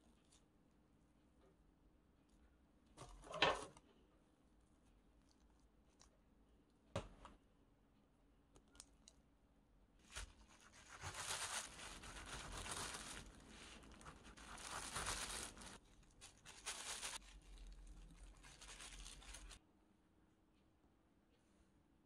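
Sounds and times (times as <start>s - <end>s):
plastic bag crinkling: 10.0s - 19.6s.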